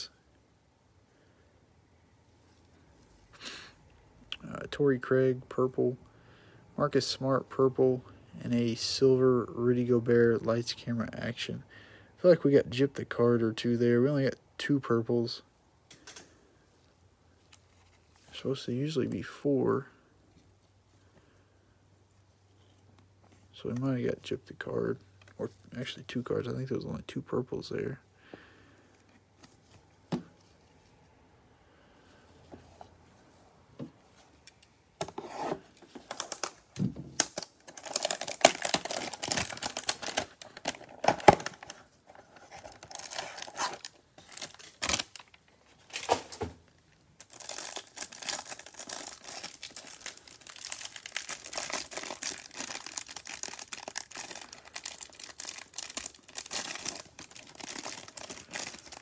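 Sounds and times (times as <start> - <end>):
cellophane crinkling and tearing: 35.2 - 59.0.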